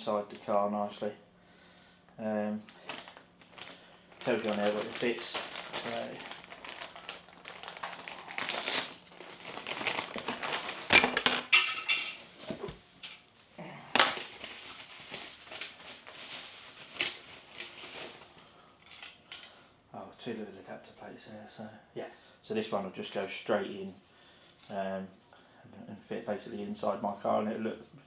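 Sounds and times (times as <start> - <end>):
plastic bag tearing and rustling: 2.7 - 11.6, 14.0 - 18.5.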